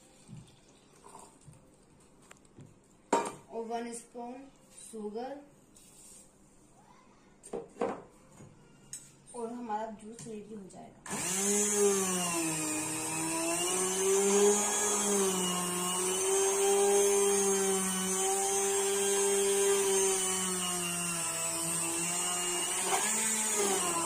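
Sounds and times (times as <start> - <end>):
stick blender motor whining: 11.1 - 24.0.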